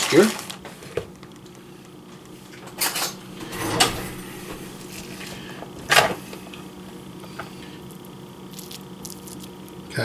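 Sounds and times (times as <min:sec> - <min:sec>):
faint steady hum: 0:00.0 - 0:10.0
plastic container scrape: 0:03.4 - 0:05.6.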